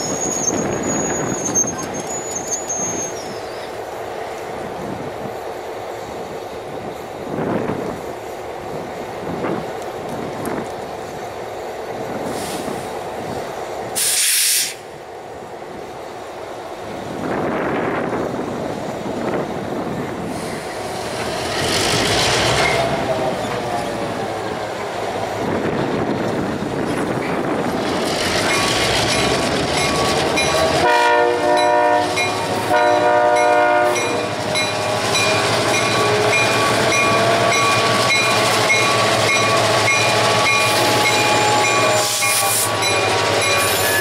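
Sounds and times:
short sharp hiss: 12.2s - 13.0s, 14.0s - 14.9s.

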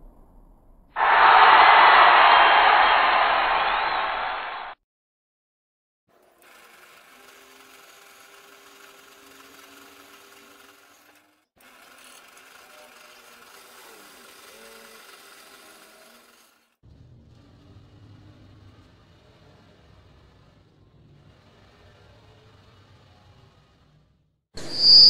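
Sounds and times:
drill press boring metal: 6.4s - 16.6s.

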